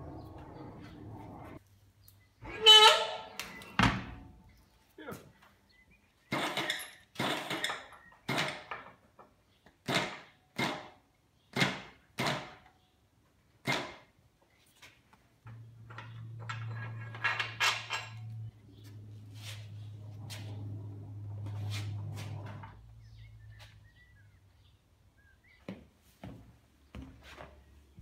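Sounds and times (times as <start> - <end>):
metallic clanks: 15.5 - 18.5.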